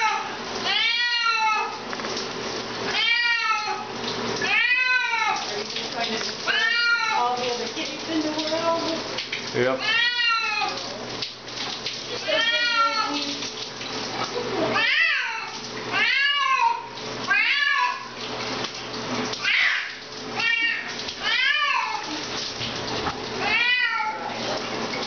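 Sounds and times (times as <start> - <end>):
cat meowing loudly: 0.0 - 1.8, 2.9 - 5.5, 6.5 - 7.2, 9.8 - 10.8, 12.2 - 13.3, 14.7 - 18.2, 19.4 - 22.1, 23.4 - 24.4
running shower hiss: 0.0 - 25.0.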